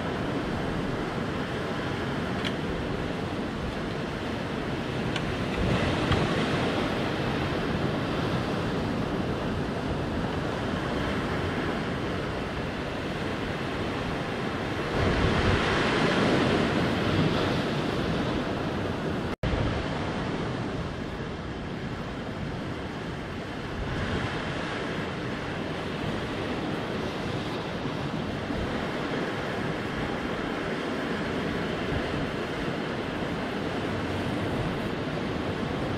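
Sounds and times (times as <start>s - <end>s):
surf washing over rocks: 0.0s - 35.9s
wind rumbling on microphone: 0.0s - 35.9s.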